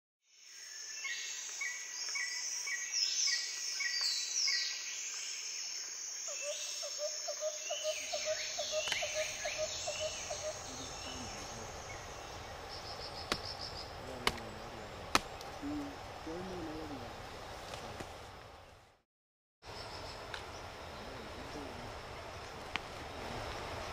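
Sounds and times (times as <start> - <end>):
insect hiss: 0.3 - 18.8, 19.7 - 23.9
birds calling: 6.3 - 17.4
sharp cracks: 13.2 - 13.6, 14.2 - 14.5, 15.1 - 15.5.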